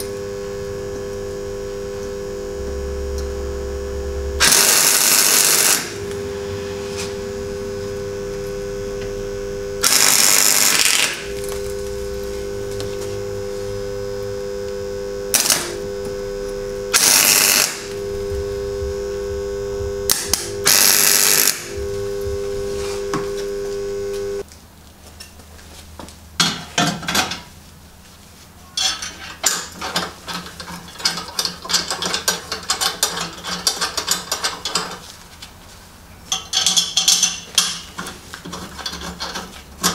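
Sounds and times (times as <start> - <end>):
welding machine hum: 0.0 - 24.4
welding arc bursts: 2.4 - 7.6, 8.8 - 13.7, 14.7 - 24.4
steel parts clinking and scraping: 28.8 - 35.2, 36.3 - 39.9.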